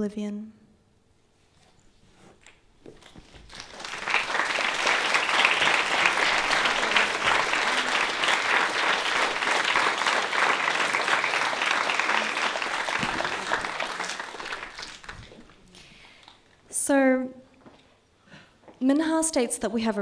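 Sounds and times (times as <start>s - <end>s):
audience applauding: 3.4s - 16.4s.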